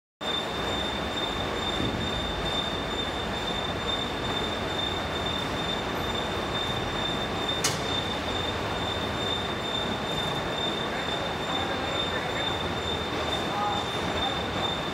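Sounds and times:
hydraulic pump whine: 0:00.2 - 0:14.9
sharp click: 0:07.6 - 0:08.0.

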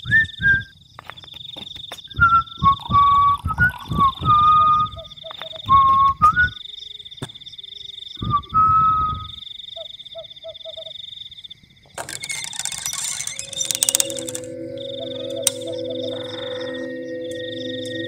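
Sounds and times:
man whistling: 0:00.0 - 0:00.7, 0:02.1 - 0:06.6, 0:08.2 - 0:09.4
frogs croaking: 0:00.0 - 0:18.0
night insects trilling: 0:00.0 - 0:18.0
keys rattling in door handle: 0:12.0 - 0:14.5.

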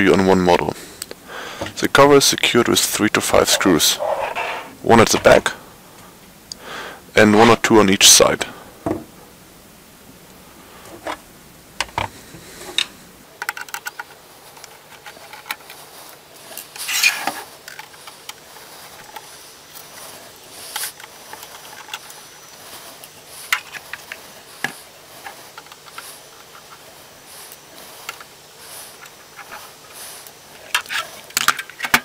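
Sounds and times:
metal scrape: 0:03.2 - 0:05.4.

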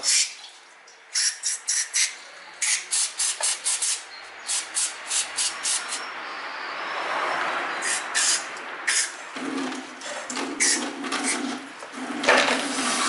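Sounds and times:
hissing spray bursts: 0:01.1 - 0:06.0, 0:07.8 - 0:09.2.

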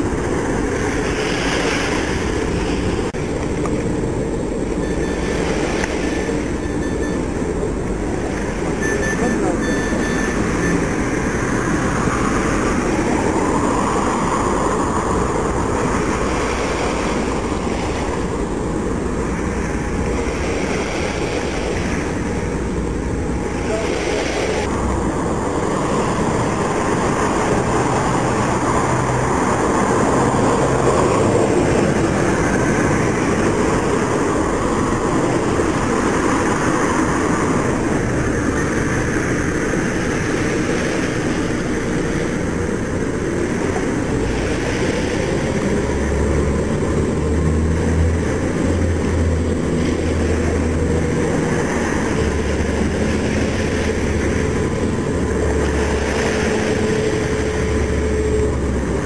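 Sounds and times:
boat diesel engines droning: 0:00.0 - 0:59.0.

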